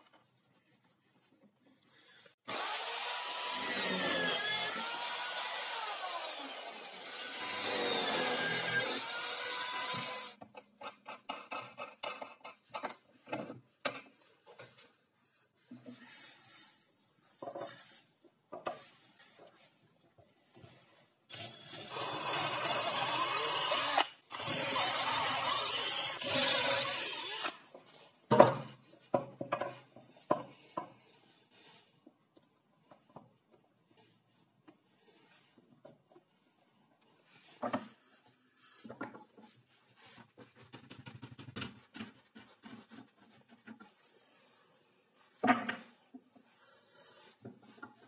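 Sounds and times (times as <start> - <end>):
cordless drill boring into wood: 2.5 - 10.4, 21.3 - 27.6.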